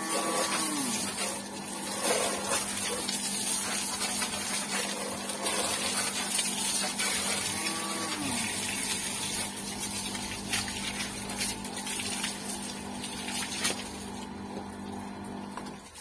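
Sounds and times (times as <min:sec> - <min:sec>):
hose water spraying and splashing: 0:00.0 - 0:16.0.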